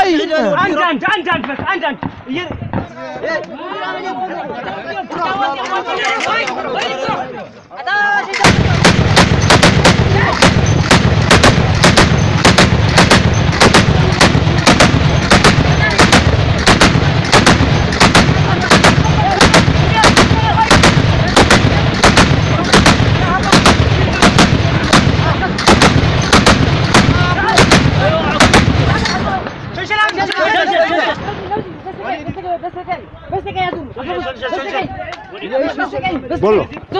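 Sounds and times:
heavy machine gun automatic fire: 8.4s - 29.2s.

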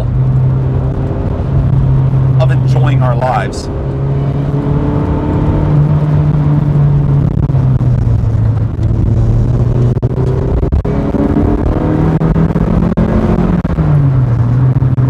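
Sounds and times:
car engine running: 0.0s - 15.0s
road rumble: 0.0s - 15.0s.

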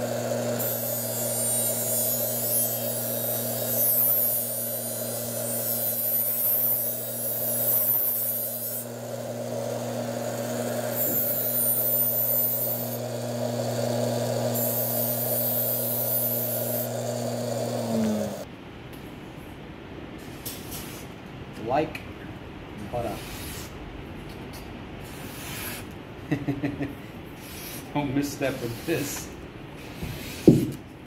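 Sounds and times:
buffer motor humming: 0.0s - 18.4s
blade hissing on buffing wheel: 0.0s - 18.5s.

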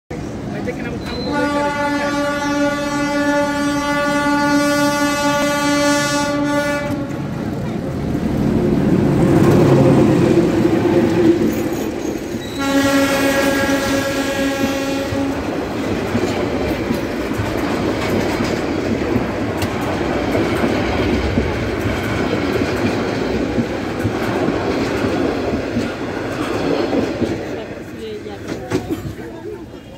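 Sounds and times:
diesel locomotive engine: 0.1s - 29.9s
train horn blast: 1.1s - 7.3s, 12.4s - 15.6s
train wheels clattering on rails: 6.8s - 29.7s.

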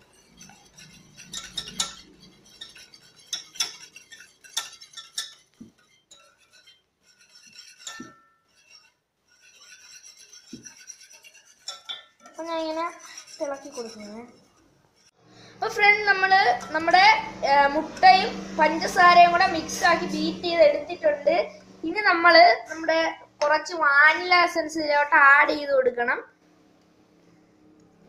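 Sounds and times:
whisk clinking in steel pan: 0.0s - 15.1s.

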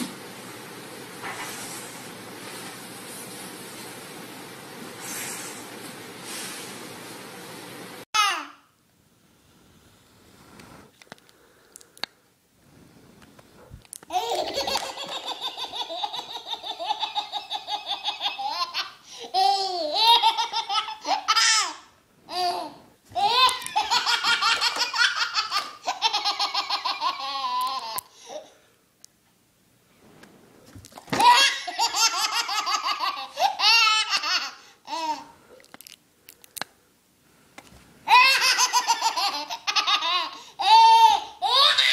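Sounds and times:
baby laughing hysterically: 14.1s - 28.0s, 31.2s - 35.3s, 38.1s - 41.9s.

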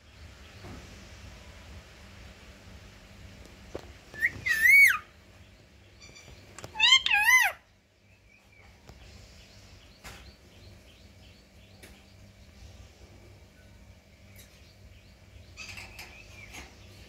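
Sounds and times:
parakeet whistled calls: 4.2s - 5.1s, 6.1s - 7.6s.

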